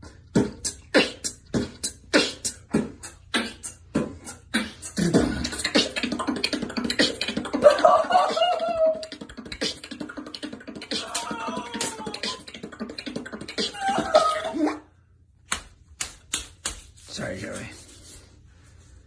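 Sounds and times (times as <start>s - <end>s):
beatboxing: 0.0s - 14.8s.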